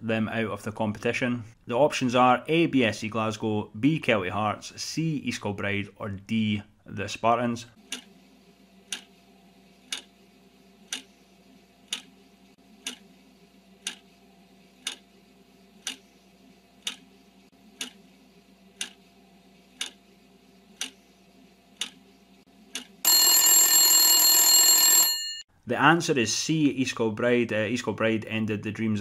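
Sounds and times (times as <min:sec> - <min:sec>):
clock ticking: 0:08.9 - 0:09.1, 0:09.9 - 0:10.1, 0:10.9 - 0:11.1, 0:11.9 - 0:12.1, 0:12.8 - 0:13.0, 0:13.8 - 0:14.0, 0:14.8 - 0:15.0, 0:15.8 - 0:16.0, 0:16.8 - 0:17.0, 0:18.8 - 0:19.0, 0:19.8 - 0:20.0, 0:20.8 - 0:21.0, 0:21.8 - 0:22.0
loud alarm bell ringing: 0:23.1 - 0:25.4.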